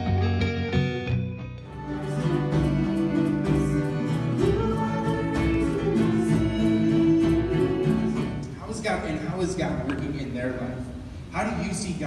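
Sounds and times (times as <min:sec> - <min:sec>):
song with singing and guitar: 0:00.0 - 0:08.6.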